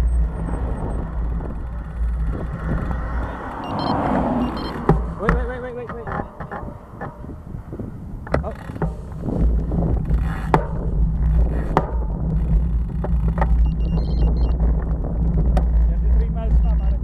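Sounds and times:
road rumble: 0:00.0 - 0:17.0
wind buffeting microphone: 0:00.0 - 0:17.0
sharp clicks and knocks: 0:04.6 - 0:07.4, 0:08.2 - 0:16.9.

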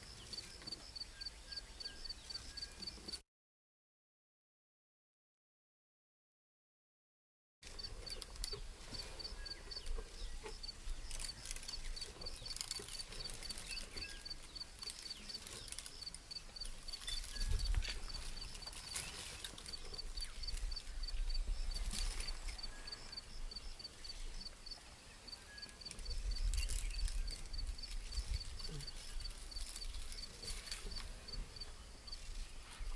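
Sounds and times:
insect chirping steadily: 0:00.0 - 0:03.2, 0:07.7 - 0:32.8
branches crackling and rustling: 0:07.6 - 0:23.2, 0:25.7 - 0:32.9.

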